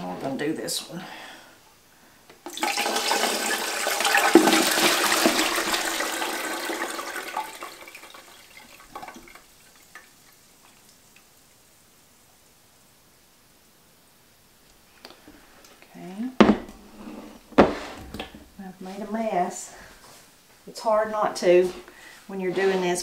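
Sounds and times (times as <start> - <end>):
liquid trickling and dripping: 7.4 - 11.5.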